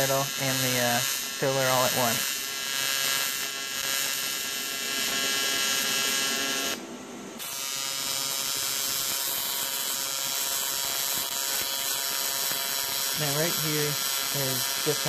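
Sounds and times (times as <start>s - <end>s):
welding arc buzzing: 0.0s - 6.8s, 7.4s - 15.0s.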